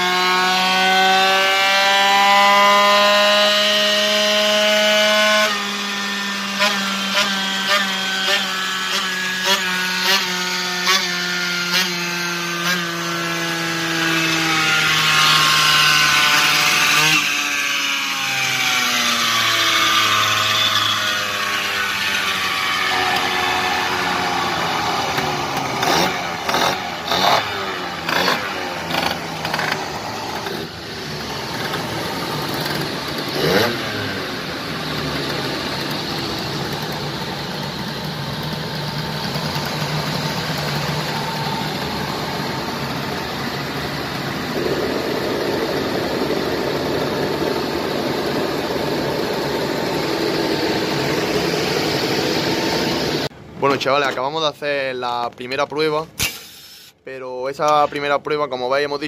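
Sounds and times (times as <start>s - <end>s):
scooter engine revving: 0.0s - 53.3s.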